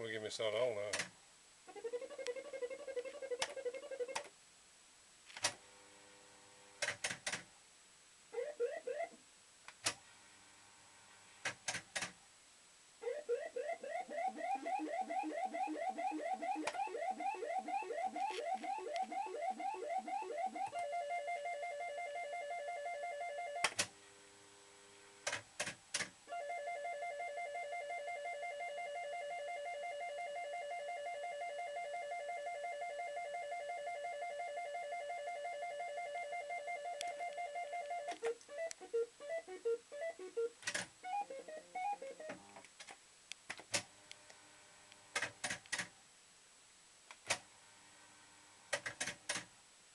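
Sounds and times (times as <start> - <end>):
rising electronic beeps: 13.1 - 23.6.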